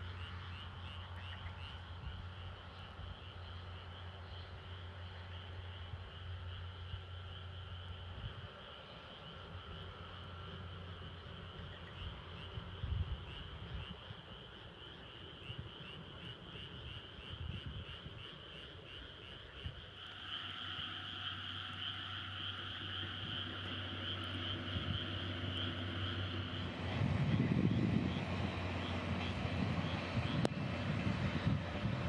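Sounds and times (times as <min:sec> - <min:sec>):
locomotive engine drone: 0:00.0 - 0:32.0
passing train rumble: 0:00.0 - 0:32.0
pulsing animal chorus: 0:08.6 - 0:30.5.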